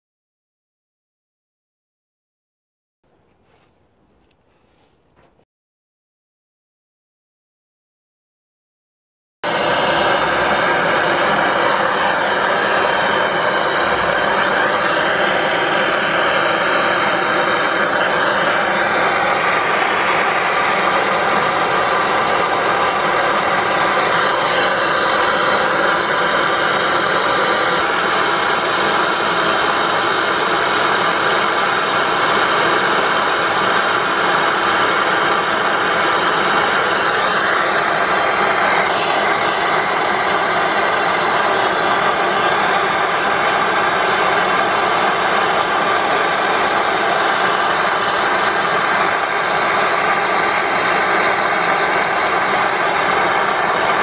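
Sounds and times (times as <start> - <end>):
gas blowtorch hissing: 9.4 - 54.0.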